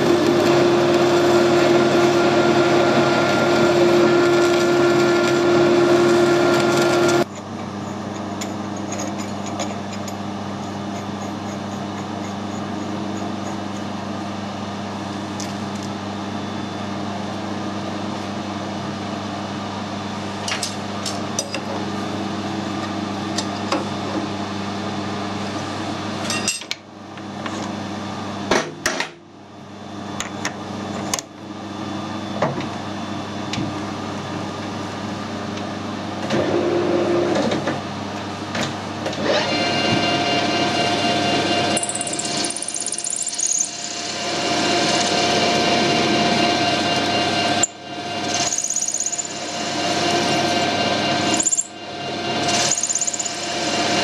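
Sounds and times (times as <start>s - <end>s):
metal lathe running: 0.0s - 14.2s, 39.2s - 54.0s
quiet machine hum: 0.0s - 54.0s.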